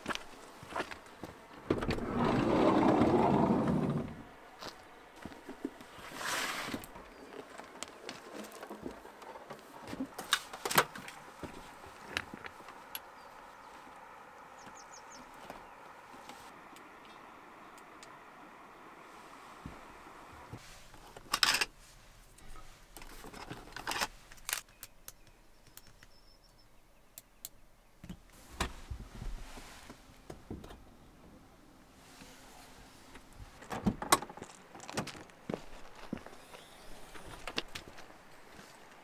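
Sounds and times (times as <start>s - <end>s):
camping gear clicking and knocking: 33.6s - 35.4s.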